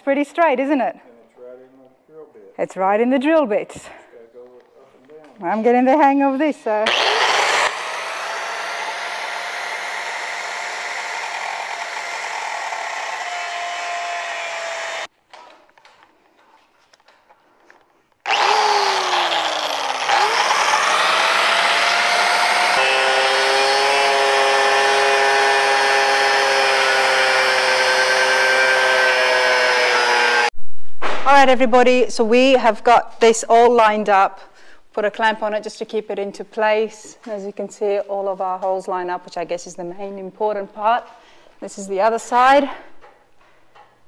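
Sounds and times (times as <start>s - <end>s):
angle grinder cutting steel: 6.8s - 15.1s, 18.3s - 30.5s.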